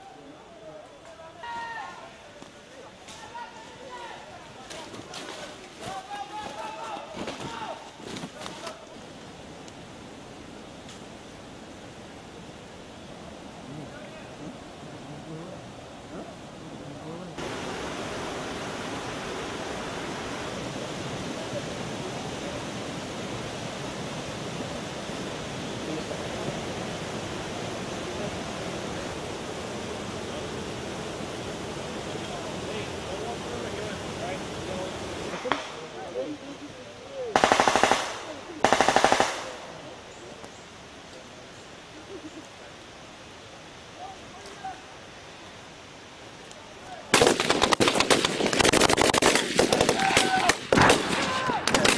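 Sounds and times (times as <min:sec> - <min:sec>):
stream flowing over rocks: 0:17.3 - 0:32.7
automatic gunfire bursts: 0:37.4 - 0:39.6, 0:47.1 - 0:51.9.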